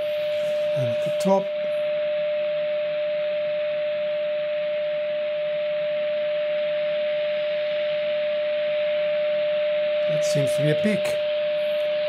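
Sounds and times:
radio hiss: 0.0 - 1.9, 10.0 - 12.0
radio test tone: 0.0 - 12.0.

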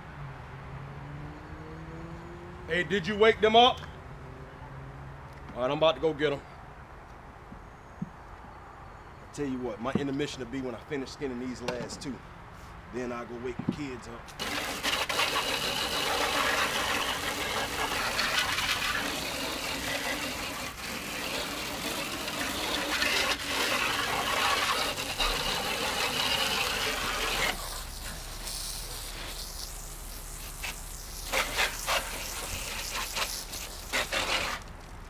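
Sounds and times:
hose water spraying on plastic: 14.3 - 35.0
water splashing: 14.3 - 35.0.

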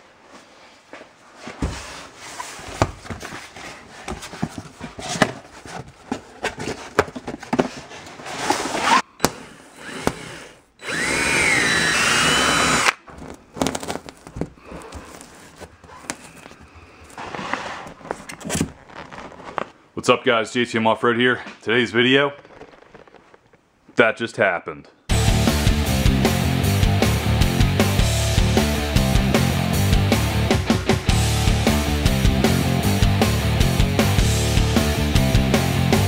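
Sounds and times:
workshop handling noises and knocks: 1.4 - 10.2
power drill drilling: 9.2 - 13.0
plastic bag rustling: 13.0 - 20.0, 21.4 - 23.7.

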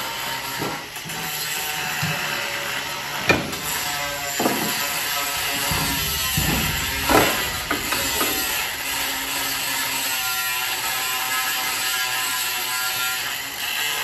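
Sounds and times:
sharp metal knocks: 3.3 - 9.9.

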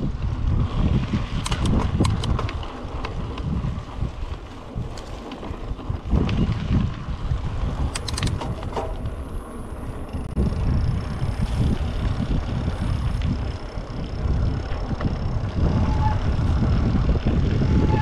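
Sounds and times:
bike clicks and rattles: 0.0 - 18.0
wind buffeting microphone: 0.0 - 18.0.

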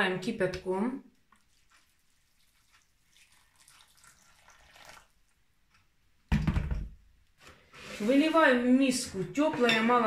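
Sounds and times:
spoon stirring water in bowl: 1.1 - 5.2.

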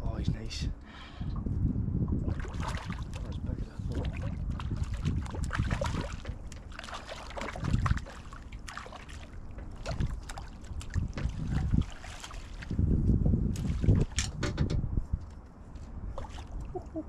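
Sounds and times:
wind buffeting microphone: 0.0 - 17.0
water slapping boat hull: 1.2 - 15.0, 16.0 - 17.0
gear knocking in boat: 3.9 - 12.0.

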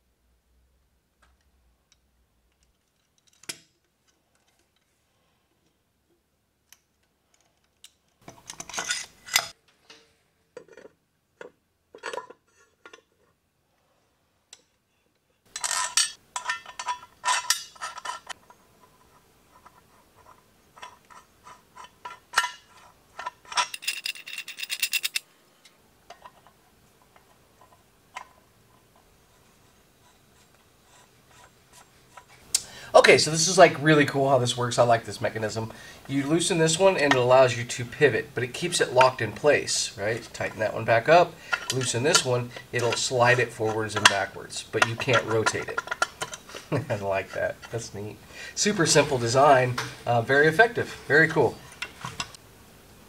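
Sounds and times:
small metal parts clinking: 7.3 - 9.6, 15.5 - 18.4, 20.8 - 25.3, 41.4 - 46.9.

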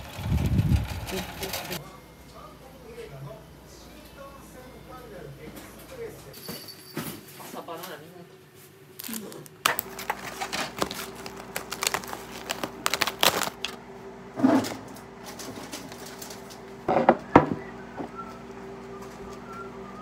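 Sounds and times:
steady low hum: 8.2 - 20.0.

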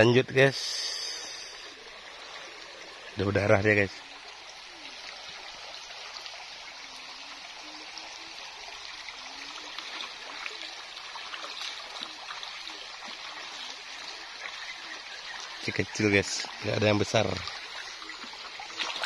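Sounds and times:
river flowing over stones: 0.0 - 19.0.

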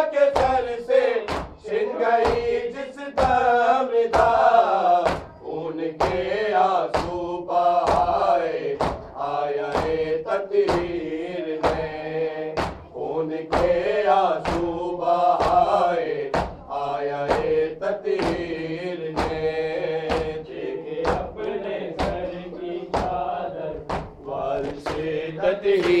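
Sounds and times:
men chanting together: 0.0 - 26.0
hand slaps on chest: 1.3 - 1.6, 2.2 - 2.6, 5.0 - 5.4, 6.9 - 7.2, 7.8 - 8.2, 8.8 - 9.1, 9.7 - 10.0, 12.6 - 12.9, 13.5 - 13.8, 14.4 - 14.7, 16.3 - 16.7, 18.2 - 18.5, 19.2 - 20.4, 23.8 - 25.1.

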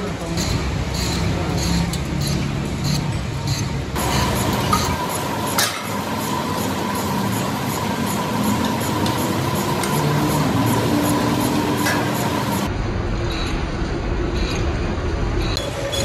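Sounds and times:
workshop machinery running: 0.0 - 16.0.

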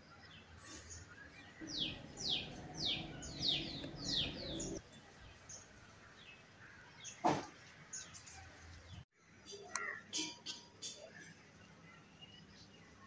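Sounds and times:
songbird chirping: 0.0 - 7.2.

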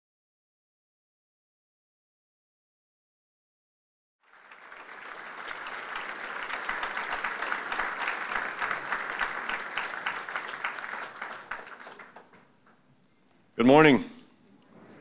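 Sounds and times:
audience applauding: 4.2 - 12.6.

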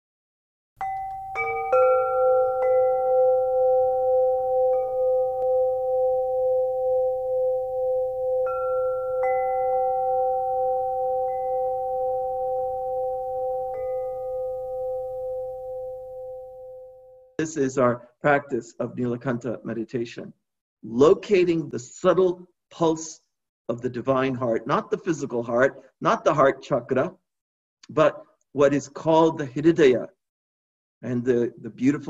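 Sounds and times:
faint light tinkles: 0.8 - 17.4
meditation bells ringing: 0.8 - 17.4.

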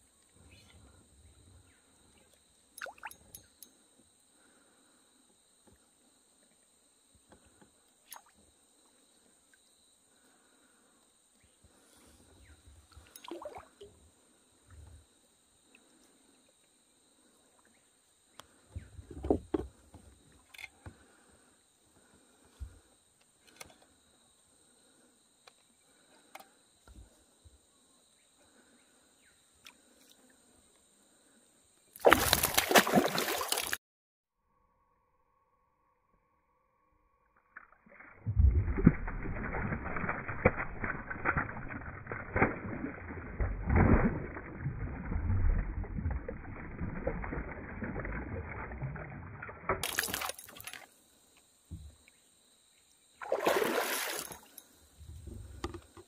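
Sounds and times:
fish splashing at surface: 32.0 - 33.8, 37.8 - 50.9, 53.2 - 54.6.

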